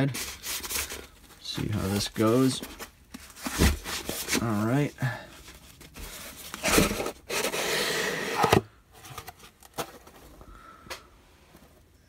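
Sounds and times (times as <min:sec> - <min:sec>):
cardboard sliding and scraping: 0:01.6 - 0:04.7, 0:05.8 - 0:09.4.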